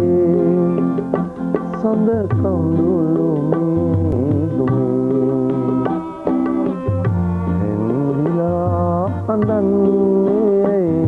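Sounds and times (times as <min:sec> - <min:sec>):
hand drum strikes: 0:00.0 - 0:11.0.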